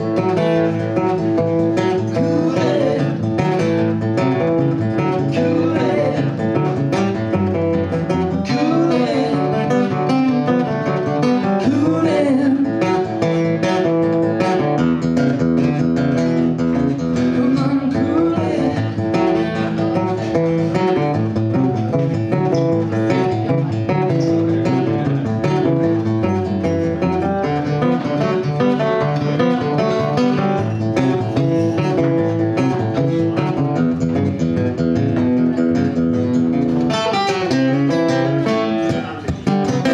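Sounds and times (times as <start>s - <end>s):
acoustic guitars strummed: 0.0s - 39.9s
person singing: 1.8s - 4.0s, 4.6s - 14.0s, 17.1s - 21.1s.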